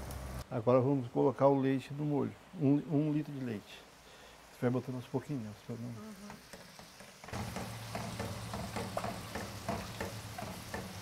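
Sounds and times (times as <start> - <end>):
sauce sizzling in a saucepan: 1.8 - 11.0
spatula scraping a pan: 6.3 - 11.0.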